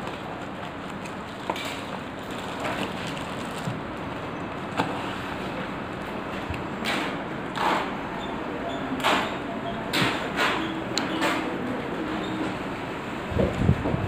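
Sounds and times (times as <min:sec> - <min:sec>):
plastic bag crinkling: 0:02.2 - 0:03.8.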